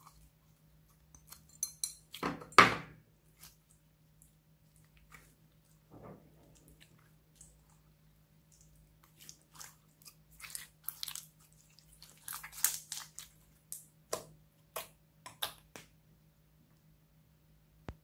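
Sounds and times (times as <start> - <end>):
sticky slime crackling and popping: 8.6 - 15.8.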